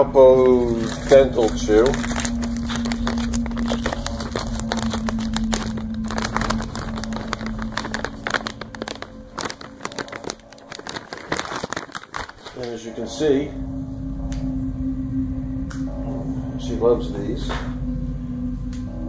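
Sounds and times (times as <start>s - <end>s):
low hum: 0.0s - 11.6s, 12.2s - 19.0s
plastic bag crinkling: 0.5s - 13.0s.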